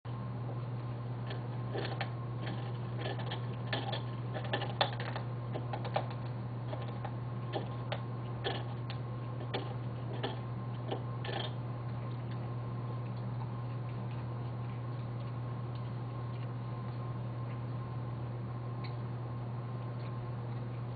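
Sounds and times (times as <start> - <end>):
low electrical hum: 0.1 - 20.9
dog gnawing a bone: 1.2 - 17.9.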